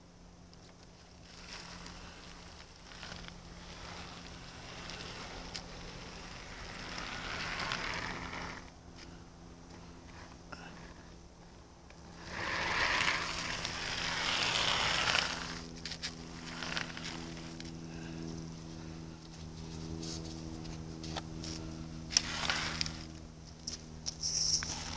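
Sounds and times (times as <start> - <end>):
snow crunching and hissing: 1.1 - 8.7, 12.1 - 19.0, 22.1 - 23.2.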